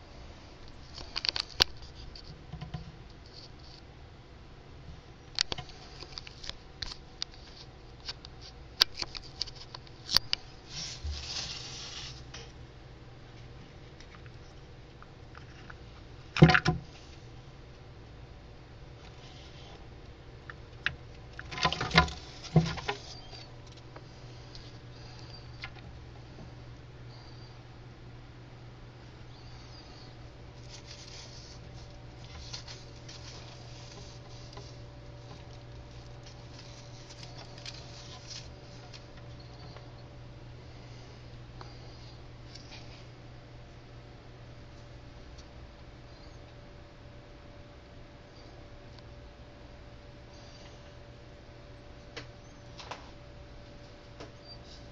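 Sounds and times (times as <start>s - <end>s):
steady low hum: 0.0s - 54.9s
hand rustling bark chips: 30.5s - 39.4s.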